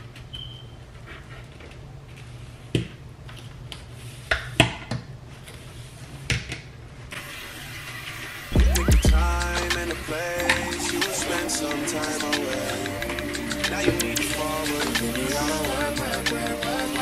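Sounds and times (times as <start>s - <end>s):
steady low hum: 8.6s - 17.0s.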